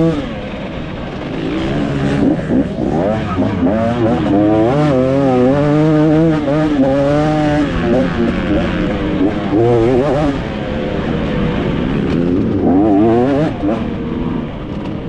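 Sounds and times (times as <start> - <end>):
motocross engine revving: 0.0 - 15.0.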